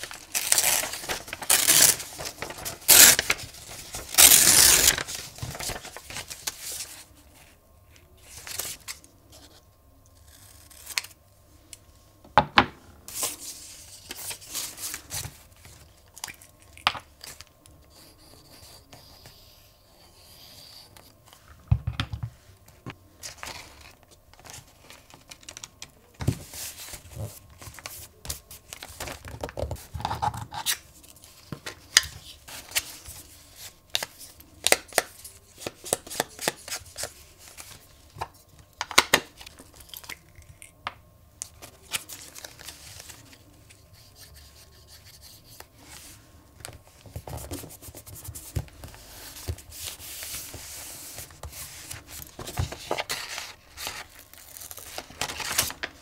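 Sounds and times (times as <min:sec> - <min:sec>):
paper rustling and tearing: 0:00.0 - 0:07.0, 0:47.2 - 0:56.0.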